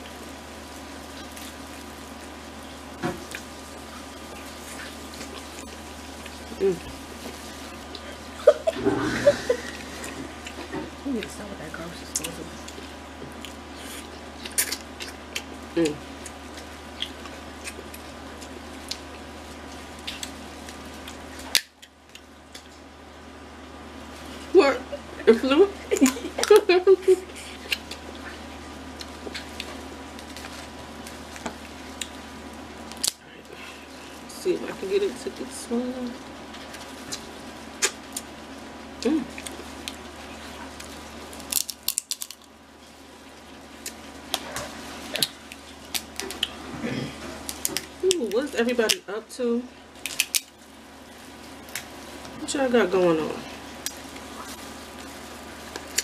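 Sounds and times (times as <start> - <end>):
crab shells cracking: 40.7 - 42.6, 45.1 - 46.6, 50.0 - 50.6.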